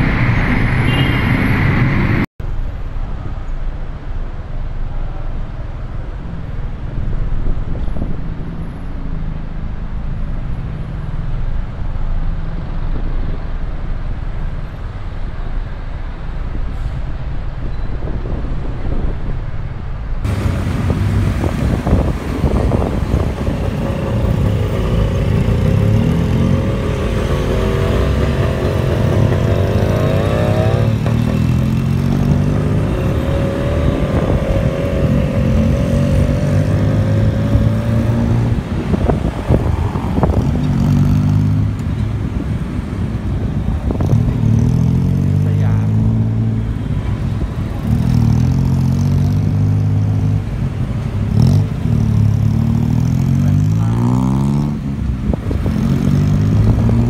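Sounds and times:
surrounding traffic: 0:00.0 - 0:57.0
motorcycle engine: 0:20.3 - 0:42.0.

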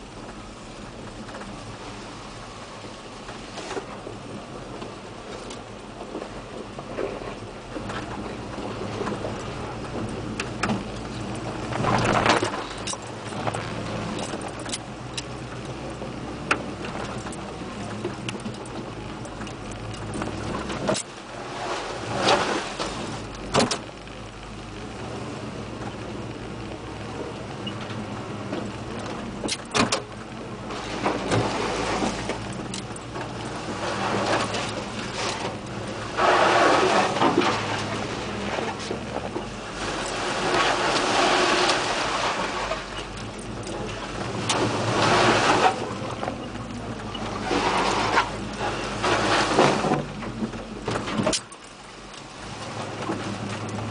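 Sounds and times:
pickup engine running: 0:00.0 - 0:53.9
tyre and trail noise: 0:00.0 - 0:53.9
cab rattles: 0:03.3 - 0:24.0, 0:27.2 - 0:53.9
knocks and rattles: 0:08.9 - 0:15.7
rush of noise: 0:09.1 - 0:14.7.

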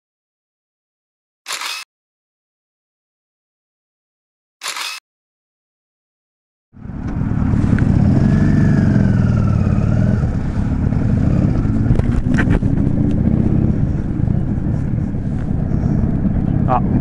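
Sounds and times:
short clicks: 0:01.5 - 0:01.9, 0:04.6 - 0:05.0
motorcycle engine rumbling: 0:06.8 - 0:17.0.

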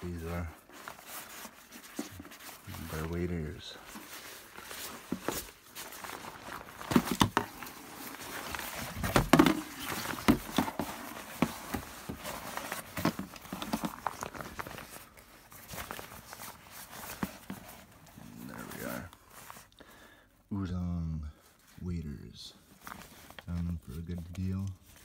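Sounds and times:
rustling and crinkling of plastic wrapping: 0:00.0 - 0:20.4, 0:21.4 - 0:25.0
bumps in cardboard box: 0:08.6 - 0:14.2.

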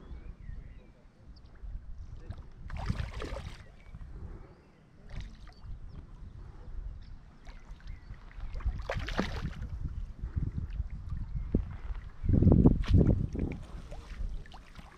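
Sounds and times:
fish splashing in water: 0:02.7 - 0:03.8, 0:08.3 - 0:09.7.

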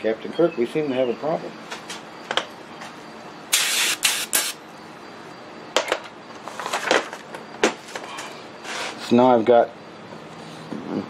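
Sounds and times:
short hissing bursts: 0:03.5 - 0:04.6.

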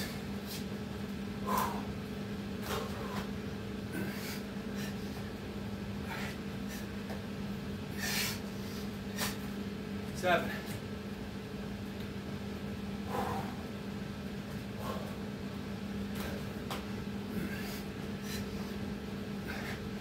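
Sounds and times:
steady low hum: 0:00.0 - 0:20.0
man breathing hard: 0:01.4 - 0:05.4, 0:06.0 - 0:07.2, 0:07.8 - 0:09.6, 0:13.0 - 0:13.8, 0:14.5 - 0:15.4, 0:17.2 - 0:20.0.

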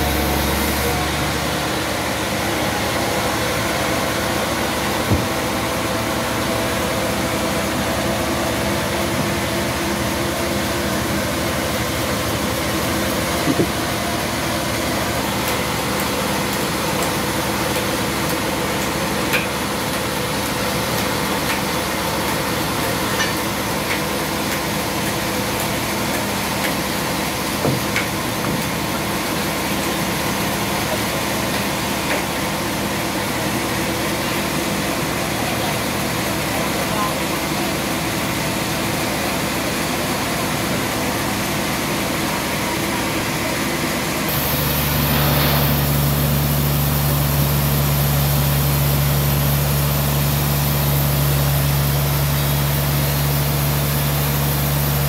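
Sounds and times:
stationary engine running: 0:00.0 - 0:08.6, 0:44.3 - 0:55.0.

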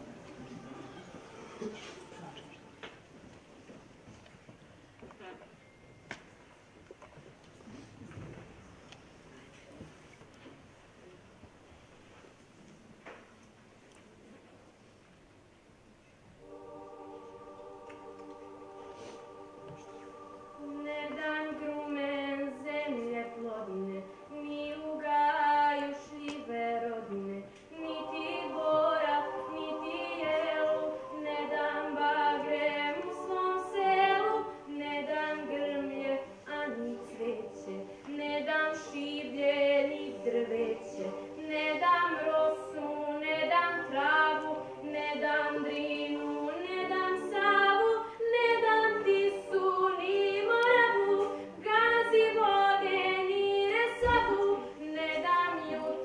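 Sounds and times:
children's choir singing: 0:00.0 - 0:03.1, 0:16.4 - 0:56.0
girl singing melody: 0:16.8 - 0:56.0.

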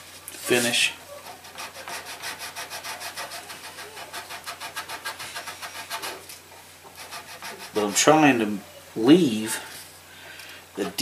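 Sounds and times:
nail file sanding plastic: 0:01.4 - 0:06.2, 0:07.0 - 0:08.1.

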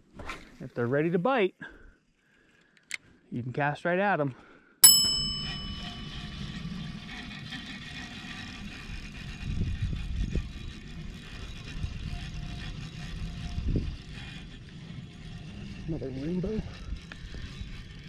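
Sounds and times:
wind rumbling on microphone: 0:08.9 - 0:18.0.

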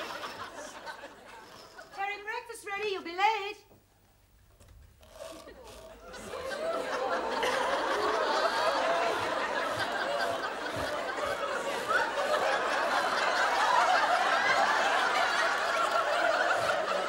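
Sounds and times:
studio audience laughing: 0:00.0 - 0:02.0, 0:05.4 - 0:17.0.

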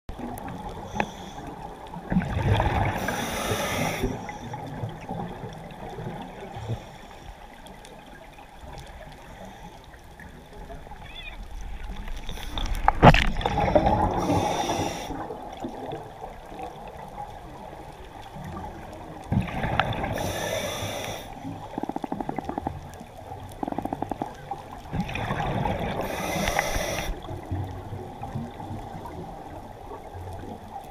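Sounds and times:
bubbles gushing from exhalation: 0:02.0 - 0:03.1, 0:12.6 - 0:17.1, 0:18.4 - 0:20.3, 0:21.5 - 0:29.4.

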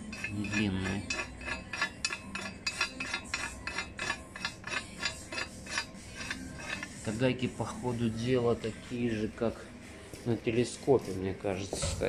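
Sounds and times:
metal nuts clinking: 0:00.1 - 0:06.9.

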